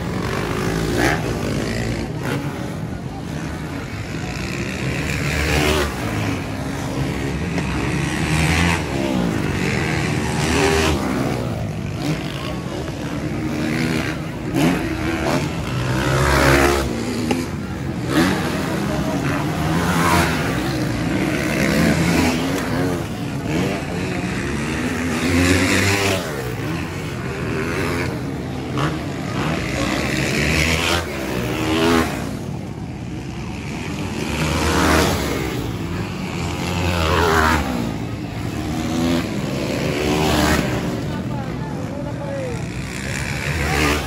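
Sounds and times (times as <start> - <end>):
dirt bike engines revving: 0.0 - 44.0.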